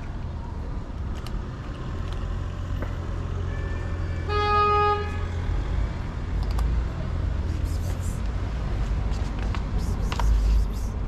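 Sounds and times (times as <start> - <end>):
low street rumble: 0.0 - 11.0
vehicle horn honking: 3.5 - 5.3.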